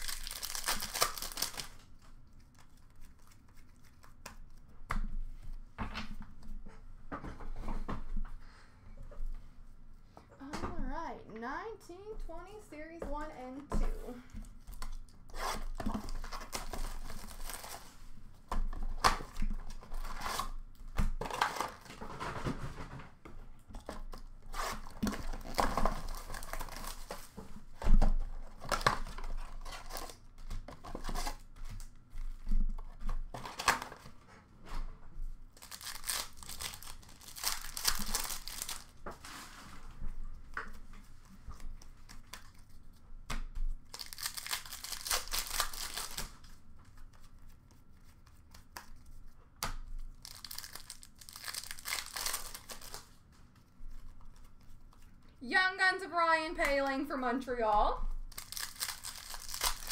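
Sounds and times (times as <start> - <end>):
wrappers rustling: 0.0 - 4.6, 35.6 - 39.8, 43.9 - 47.3, 50.1 - 55.2, 58.3 - 59.9.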